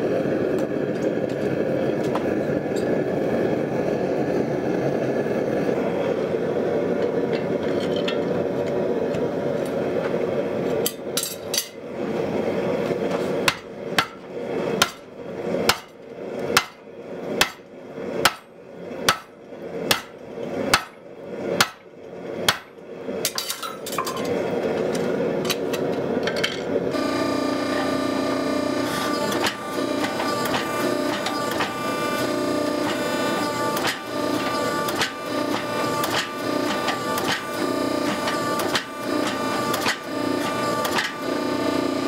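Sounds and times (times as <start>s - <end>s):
forge burner rushing: 0.0s - 42.0s
hammer striking metal: 13.5s - 15.1s, 15.7s - 16.0s, 16.6s - 16.8s, 17.4s - 18.5s, 19.1s - 21.0s, 21.6s - 21.8s, 22.5s - 22.7s.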